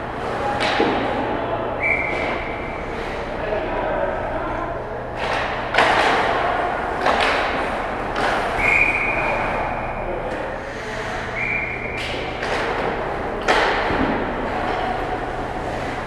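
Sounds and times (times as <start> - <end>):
sticks and puck knocking boards: 0.4 - 1.3, 5.2 - 9.1, 11.9 - 16.0.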